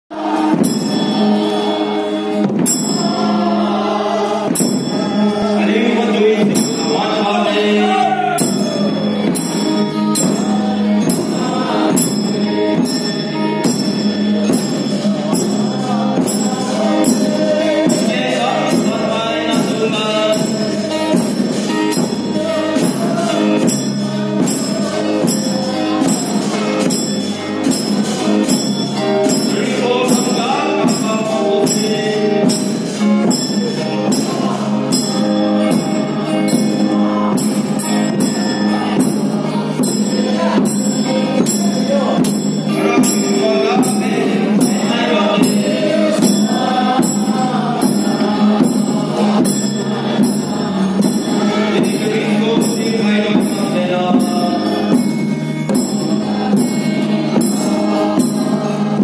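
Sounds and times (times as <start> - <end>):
steady drum beat: 0.1 - 59.0
voices singing through loudspeakers: 0.1 - 59.0
jingling percussion: 0.2 - 59.0.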